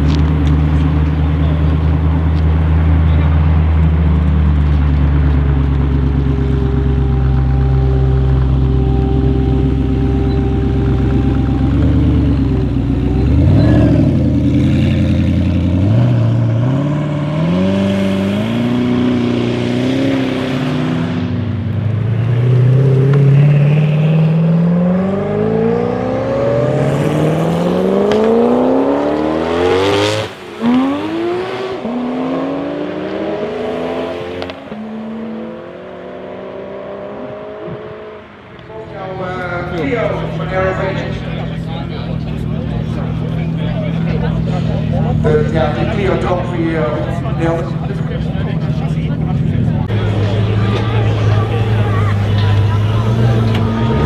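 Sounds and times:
car engines accelerating hard: 0.0 - 54.0.

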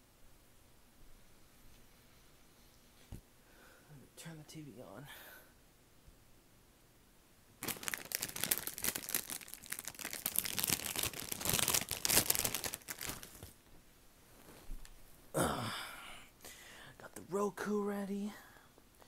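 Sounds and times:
packaging crackling and rustling: 7.6 - 13.6.

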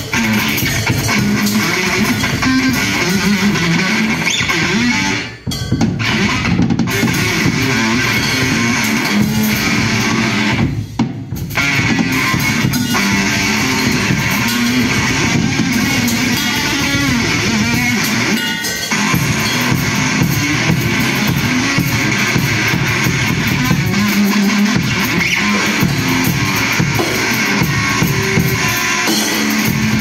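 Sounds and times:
drum kit: 0.0 - 30.0
electric bass guitar: 0.0 - 30.0.

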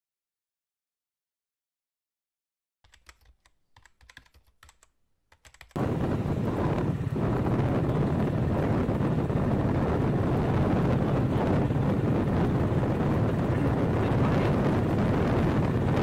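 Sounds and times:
tuk-tuk engine and road rumble: 5.8 - 16.0
wind buffeting microphone: 5.8 - 16.0.

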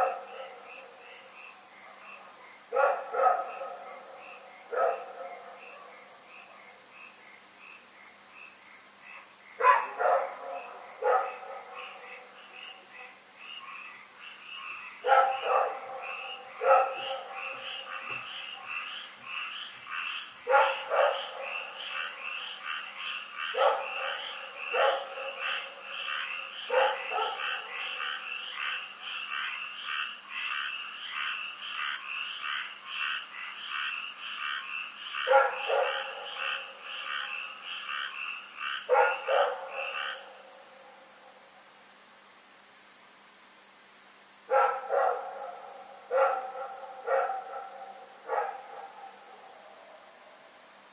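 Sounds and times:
dog barking: 0.0 - 0.6, 1.8 - 4.1, 4.7 - 6.7, 9.6 - 12.0, 15.0 - 18.2, 20.5 - 21.7, 23.5 - 25.7, 26.6 - 27.8, 35.2 - 36.7, 38.9 - 40.3, 44.5 - 49.2.

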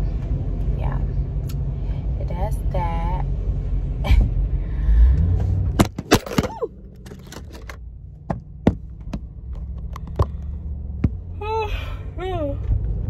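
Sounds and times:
car cabin low rumble: 0.0 - 13.0
sharp taps and knocks: 8.2 - 11.2.

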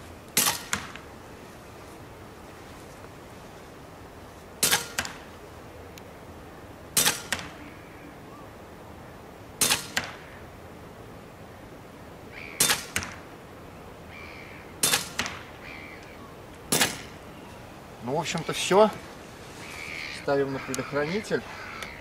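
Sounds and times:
air rifle shots cracking: 0.4 - 1.0, 4.6 - 5.3, 7.0 - 7.6, 9.6 - 10.2, 12.6 - 13.2, 14.8 - 15.5, 16.7 - 17.2.

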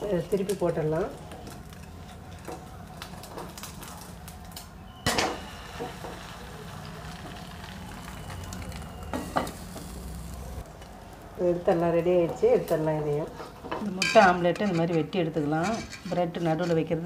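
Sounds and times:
omelette sizzling in pan: 5.1 - 13.6.

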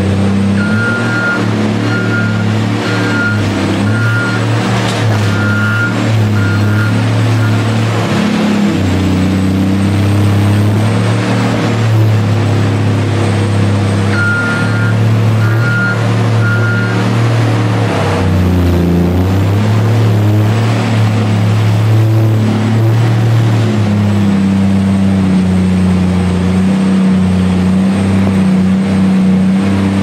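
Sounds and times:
diesel engine running: 0.0 - 30.0
reversing alarm beeping: 0.6 - 4.6, 5.2 - 7.7, 14.1 - 17.1.

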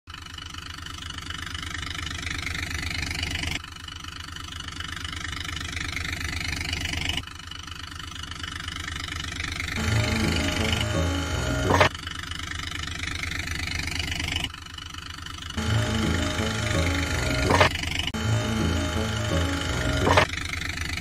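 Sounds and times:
engine knocking idle: 0.1 - 9.8, 11.8 - 18.2, 19.5 - 21.0.

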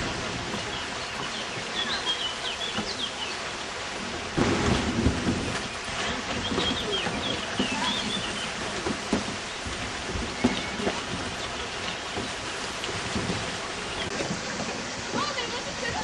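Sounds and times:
river water rushing: 0.0 - 16.0
small birds chirping: 0.5 - 3.8, 4.7 - 12.9, 13.6 - 14.2.

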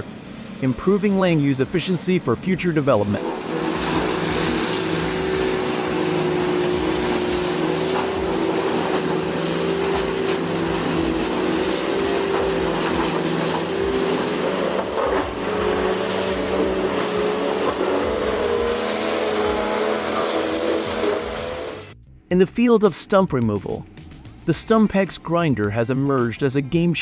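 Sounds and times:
heavy diesel engine running: 0.0 - 22.0
knocks and cracks of grinding wood: 6.4 - 18.8.

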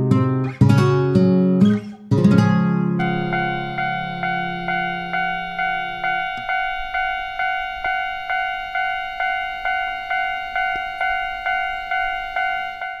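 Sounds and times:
guitar chord: 0.0 - 13.0
railroad crossing bell ringing: 3.0 - 13.0.

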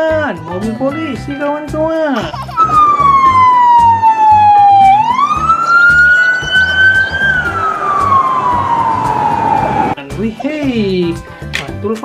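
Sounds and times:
background music: 0.0 - 12.0
police siren wailing: 2.6 - 10.0.

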